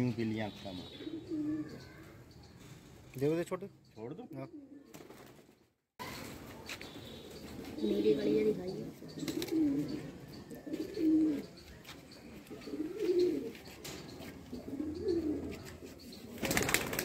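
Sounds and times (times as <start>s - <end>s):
pigeons cooing: 0.8s - 2.8s, 4.2s - 5.2s, 6.9s - 17.0s.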